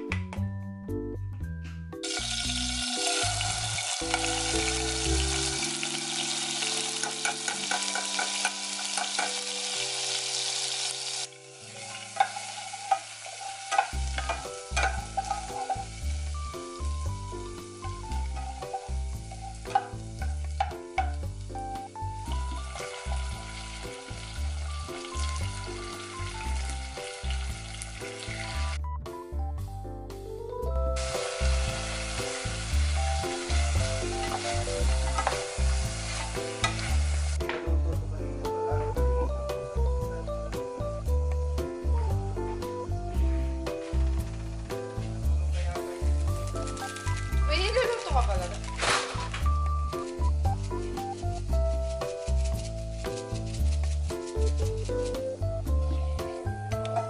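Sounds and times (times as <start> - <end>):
background music with steady beat: 0.0 - 9.7, 13.6 - 57.0
garlic sizzling in hot fat: 2.0 - 28.8, 31.0 - 37.6, 42.6 - 57.0
spoon stirring and tapping: 6.6 - 9.6, 11.9 - 16.1, 17.8 - 21.4.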